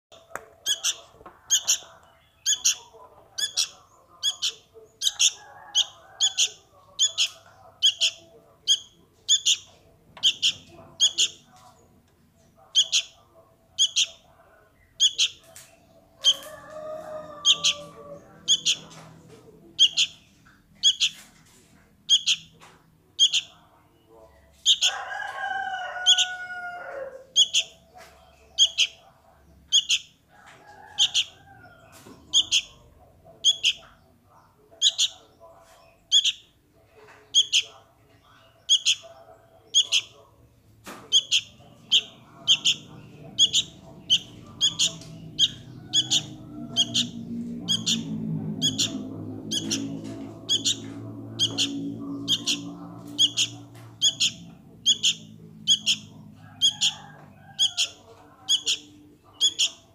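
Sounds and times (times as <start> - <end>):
fledgling bird begging chirps: 0.6 - 11.5, 13.8 - 14.2, 14.8 - 15.4, 17.4 - 18.8, 22.1 - 22.5, 32.3 - 32.8, 33.4 - 34.0, 38.4 - 39.1, 41.1 - 49.8, 50.5 - 52.6, 53.2 - 57.0, 57.6 - 59.9.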